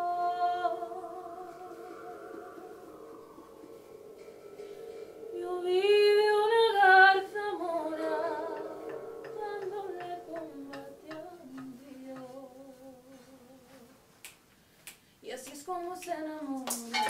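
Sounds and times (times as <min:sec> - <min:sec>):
woman singing unaccompanied: 0:00.0 - 0:03.1, 0:05.4 - 0:13.9, 0:15.2 - 0:17.0.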